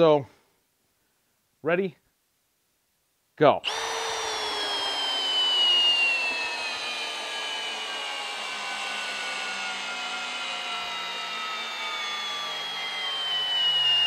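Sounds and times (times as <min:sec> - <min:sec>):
hammer drill motor whine: 0:03.6 - 0:14.0.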